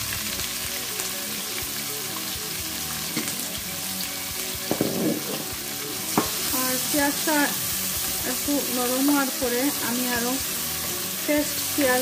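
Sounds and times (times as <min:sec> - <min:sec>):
onions sizzling in hot oil: 0:00.0 - 0:12.0.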